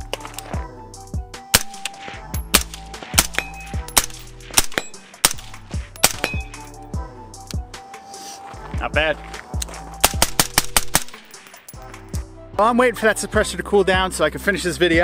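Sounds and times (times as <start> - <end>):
background music with a beat: 0.0 - 15.0
suppressed rifle shots: 1.5 - 6.6, 10.0 - 11.4.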